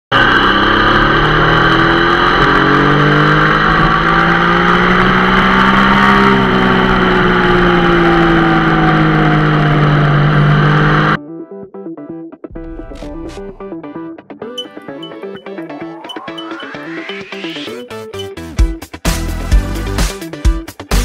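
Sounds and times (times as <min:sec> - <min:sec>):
motorcycle engine cruising: 0:00.1 - 0:11.2
wind and road noise: 0:00.2 - 0:11.2.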